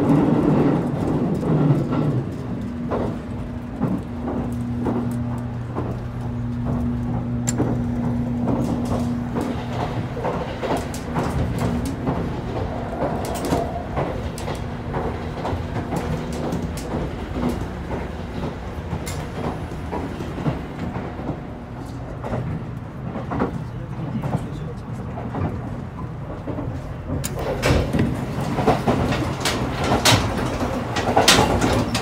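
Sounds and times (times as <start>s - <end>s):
rail joint clicks and rattles: 0.0s - 32.0s
train running rumble: 0.0s - 32.0s
low hum: 0.8s - 23.1s.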